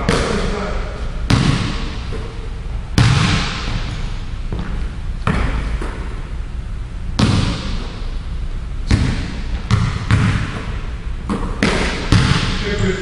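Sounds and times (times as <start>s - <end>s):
basketball bouncing on gym floor: 1.3s - 6.3s, 7.2s - 8.1s, 8.8s - 13.0s.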